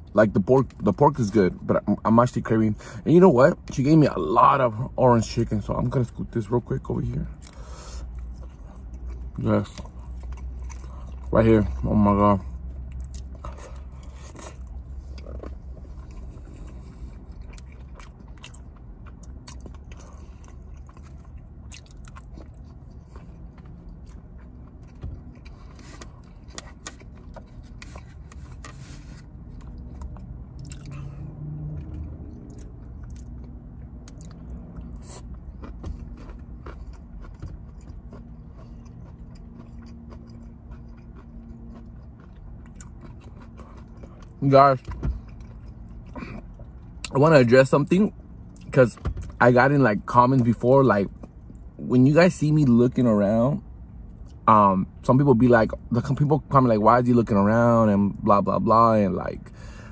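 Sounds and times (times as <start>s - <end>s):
low steady hum: 0.0s - 59.9s
close-up chewing: 7.3s - 11.3s, 12.6s - 47.2s.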